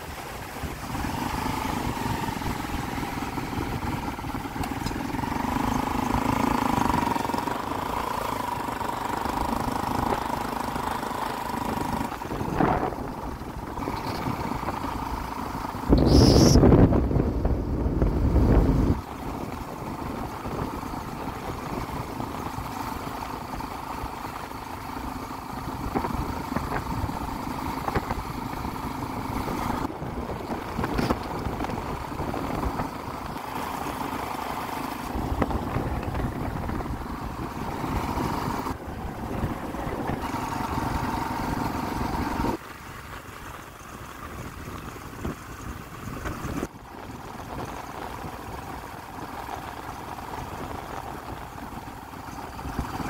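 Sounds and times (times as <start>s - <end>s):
rushing wind noise: 0.0s - 5.4s, 11.8s - 15.1s, 15.8s - 23.6s, 25.6s - 34.1s, 35.0s - 42.6s
motorcycle engine running: 0.0s - 53.0s.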